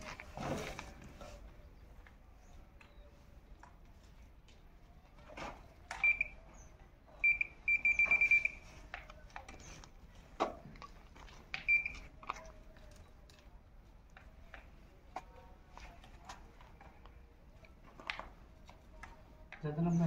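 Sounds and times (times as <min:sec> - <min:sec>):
metal detector pinpointer beeping: 0:06.0 - 0:06.4, 0:07.2 - 0:08.6, 0:11.6 - 0:12.1.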